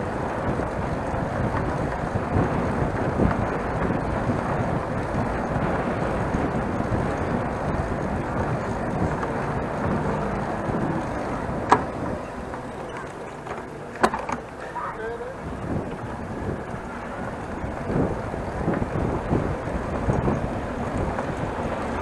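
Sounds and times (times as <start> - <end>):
bicycle road noise: 0.0 - 22.0
wind rushing over microphone: 0.0 - 22.0.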